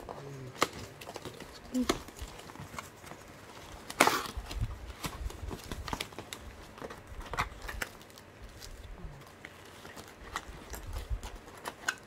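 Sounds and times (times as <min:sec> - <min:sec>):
paper envelope rustling: 0:00.0 - 0:12.0
plastic packaging crinkling: 0:00.0 - 0:12.0.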